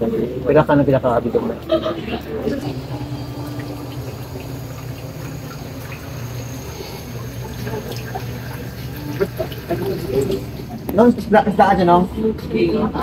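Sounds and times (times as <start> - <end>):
steady low hum: 0.0 - 12.4
water splashing and trickling: 2.5 - 11.0.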